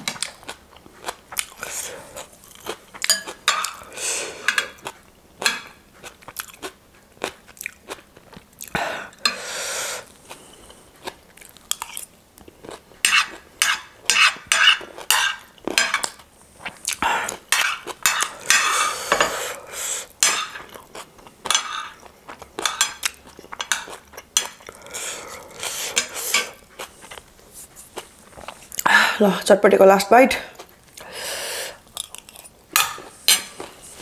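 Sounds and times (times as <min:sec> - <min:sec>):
cutlery scraping on plate: 0:03.0 - 0:03.8, 0:04.4 - 0:04.8, 0:13.0 - 0:16.2, 0:17.5 - 0:19.6, 0:21.5 - 0:22.0, 0:22.6 - 0:24.6, 0:25.8 - 0:26.6, 0:32.3 - 0:33.8.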